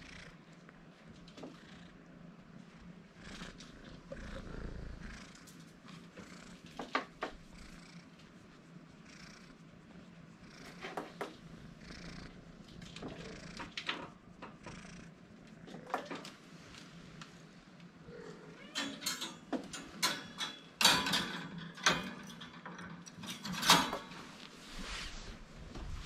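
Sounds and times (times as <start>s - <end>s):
kitten purring: 0.0s - 17.2s.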